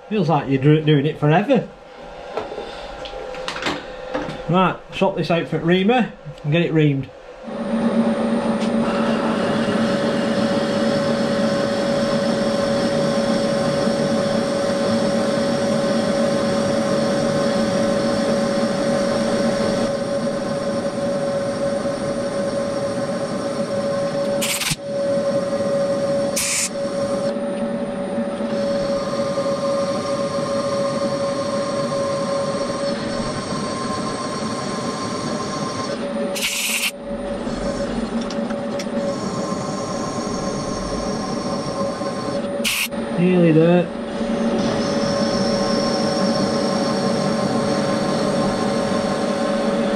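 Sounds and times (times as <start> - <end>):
milling machine spindle whine: 0.0 - 49.9
compressed air hisses: 24.4 - 24.8, 26.4 - 26.7, 36.4 - 36.9, 42.6 - 42.9.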